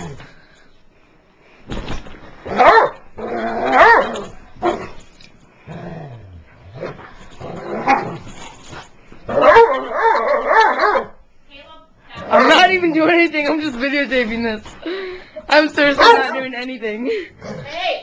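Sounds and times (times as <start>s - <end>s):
dogs growling and barking: 2.4s - 11.2s, 12.2s - 12.7s, 16.0s - 16.4s
dog yelping: 3.6s - 4.2s, 9.3s - 11.2s, 16.0s - 16.4s.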